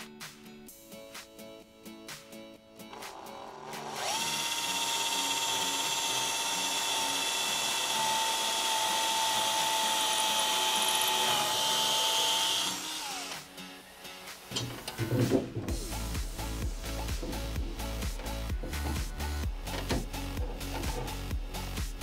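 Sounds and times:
electric drill spinning: 2.9s - 13.7s.

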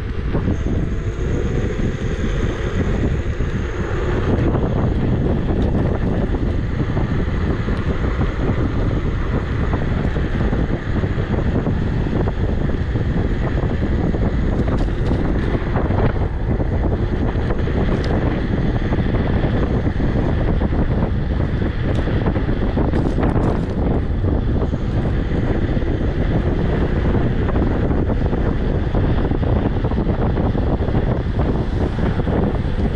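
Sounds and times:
low rumble: 0.0s - 32.9s
wind buffeting microphone: 0.0s - 32.9s.

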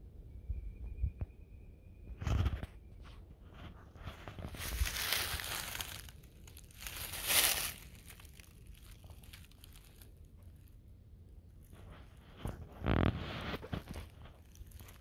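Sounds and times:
footsteps in dry leaves: 3.4s - 10.7s, 11.6s - 15.0s.

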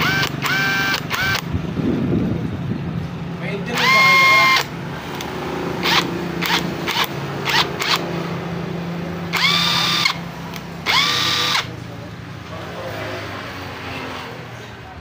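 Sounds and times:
impact wrench motor whine: 0.0s - 1.5s, 3.7s - 8.0s, 9.3s - 10.2s, 10.8s - 11.7s.

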